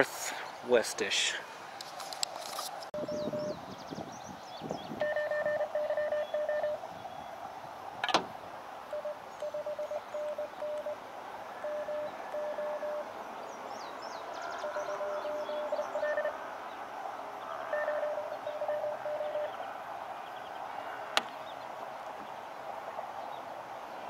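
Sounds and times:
morse code tone: 3.0s - 3.6s, 5.0s - 6.8s, 8.9s - 11.0s, 11.6s - 13.0s, 14.6s - 16.4s, 17.7s - 19.6s.

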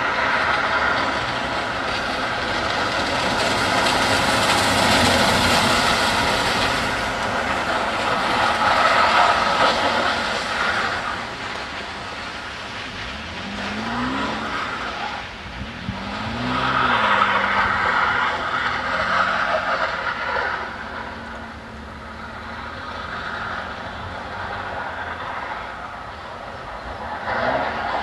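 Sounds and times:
tyres skidding on ice: 0.0s - 28.0s
car engine revving: 12.8s - 25.8s.

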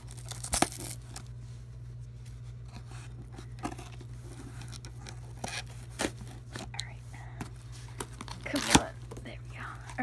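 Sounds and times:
cardboard tearing: 0.0s - 1.3s
steady low hum: 0.0s - 10.0s
cardboard and tape scraping: 2.6s - 6.8s.

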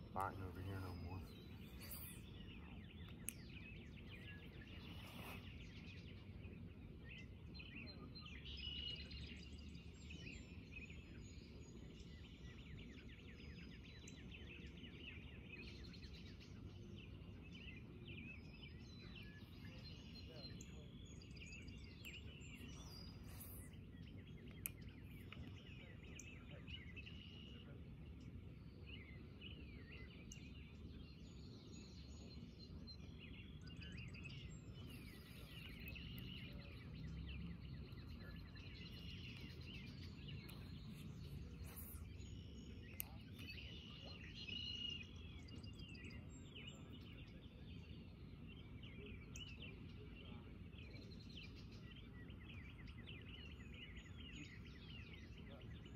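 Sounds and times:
birds chirping: 0.0s - 55.9s
low outdoor rumble: 34.3s - 43.9s.

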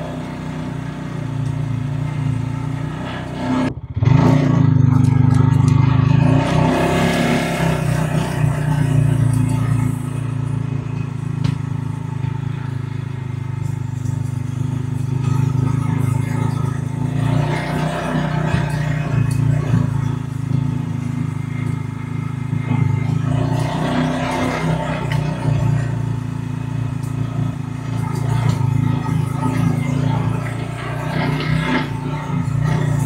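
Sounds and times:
diesel tractor engine running: 0.0s - 33.0s.

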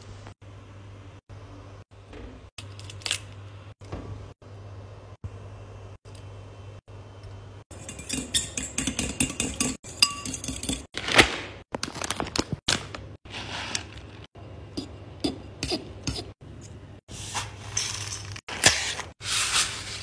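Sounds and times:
fork beating eggs in bowl: 7.7s - 10.9s, 14.7s - 16.4s
plastic packet rustling: 11.0s - 14.3s.

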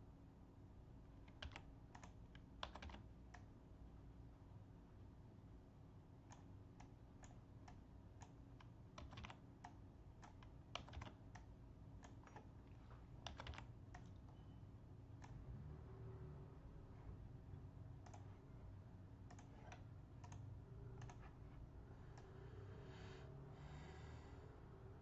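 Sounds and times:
low steady hum: 0.0s - 25.0s
computer keyboard and mouse clicking: 1.2s - 3.5s, 6.2s - 14.4s, 15.2s - 15.5s, 18.0s - 18.3s, 19.2s - 21.4s.

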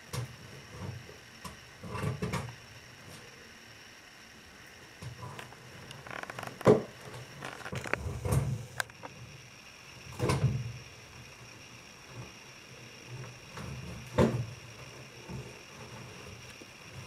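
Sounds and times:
clicks and thuds: 5.1s - 9.0s.

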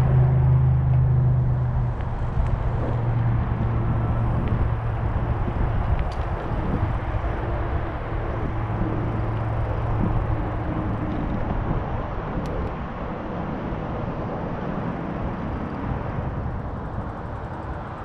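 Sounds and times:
wind on microphone: 0.0s - 18.0s
bicycle tyres rolling: 0.8s - 12.7s.

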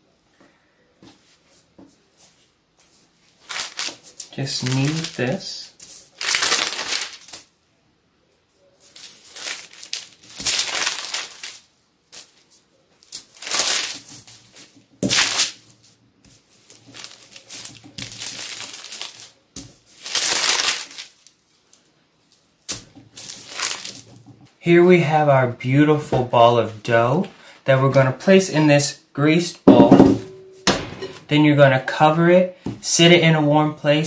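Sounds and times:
wax paper rustling and crinkling: 2.2s - 7.5s, 8.8s - 24.5s.

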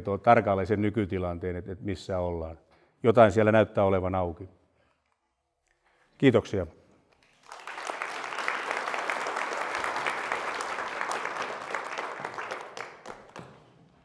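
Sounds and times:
audience applauding: 7.2s - 13.7s.

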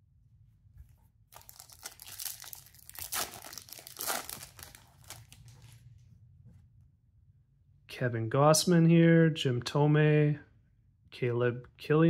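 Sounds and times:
foil wrapper tearing and crinkling: 1.4s - 5.6s.

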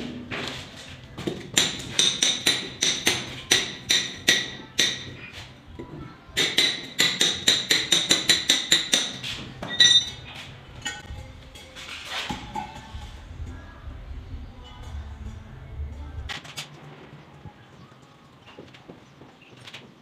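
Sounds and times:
hammer striking steel chisel: 1.3s - 5.2s, 6.4s - 10.2s.

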